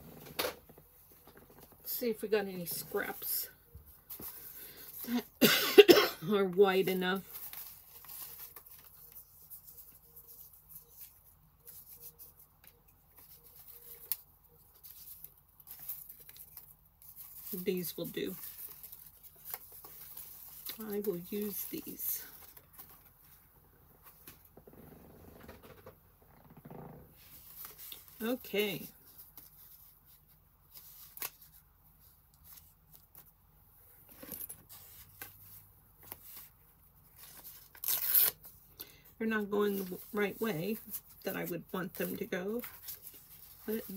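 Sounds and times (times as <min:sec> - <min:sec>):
paper rustling: 0:06.7 - 0:23.4, 0:39.5 - 0:43.9.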